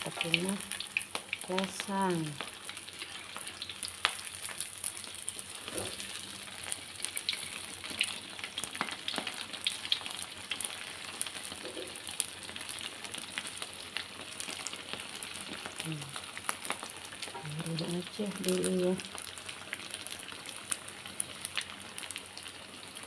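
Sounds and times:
rice cake sizzling in hot oil: 0.0 - 23.0
metal spatula scraping wok: 5.6 - 6.2.

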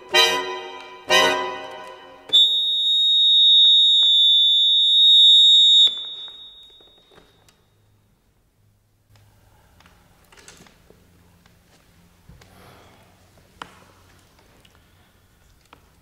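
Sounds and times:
button accordion chord: 0.0 - 2.2
high accordion note held: 0.0 - 7.0.

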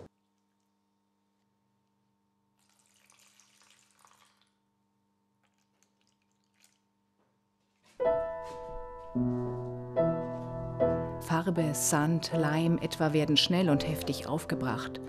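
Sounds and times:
paint trickling in a tray: 2.6 - 4.6, 5.4 - 6.9
piano music: 8.0 - 15.0.

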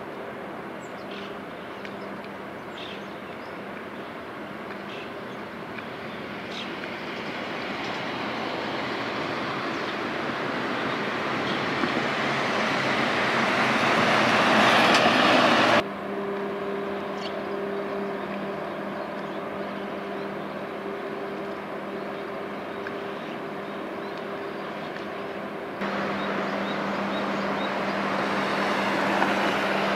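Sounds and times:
machinery hum with low tones: 15.8 - 29.8
broad rushing noise: 24.4 - 29.9.

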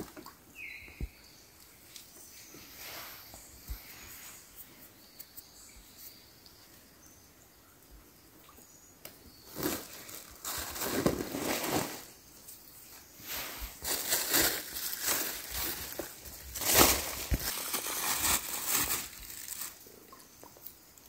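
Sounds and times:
outdoor ambience: 0.0 - 21.0
bird chirps: 0.5 - 7.8
rustling: 9.5 - 19.9.

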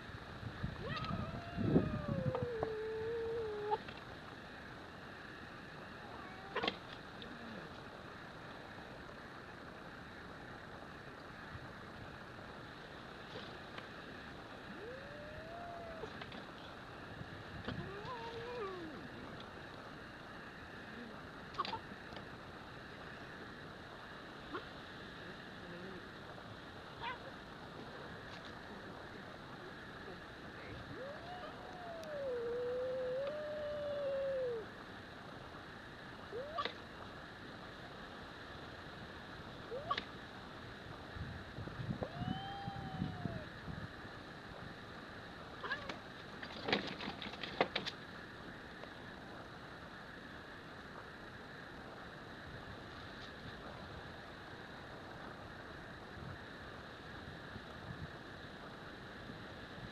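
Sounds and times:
steady background hiss: 0.0 - 59.9
cat call rising: 0.8 - 3.8, 42.0 - 43.5
cat calling: 0.8 - 3.9, 6.0 - 6.8, 36.3 - 36.8, 39.7 - 40.1.

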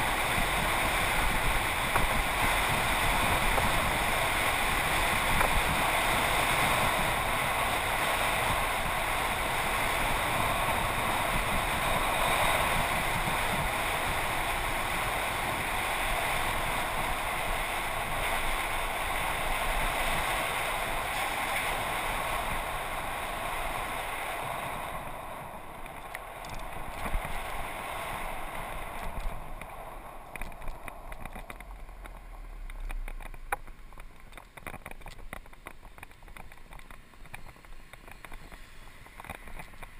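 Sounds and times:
bicycle clicks and rattles: 0.0 - 7.4, 25.5 - 39.9
rushing wind noise: 0.0 - 39.9.

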